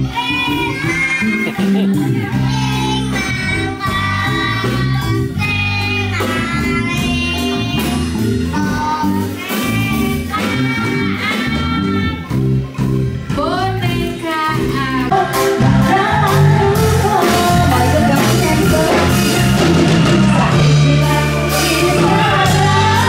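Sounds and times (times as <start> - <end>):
child singing into microphone: 0.0 - 12.5, 20.5 - 23.0
angklung and band accompaniment: 0.0 - 23.0.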